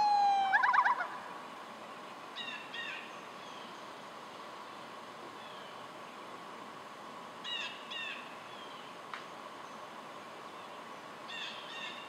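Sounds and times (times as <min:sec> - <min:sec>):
outdoor background hiss: 0:00.0 - 0:12.0
faint click: 0:09.1 - 0:09.3.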